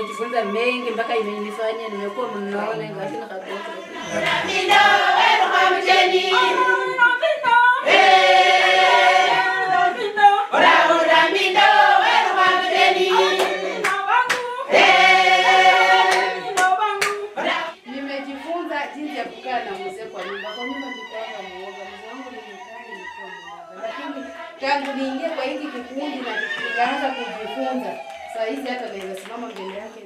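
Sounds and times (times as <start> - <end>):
group singing in chorus: 0.8 - 22.4, 23.1 - 26.8
hand claps: 13.3 - 14.5, 16.1 - 17.3, 28.0 - 30.0.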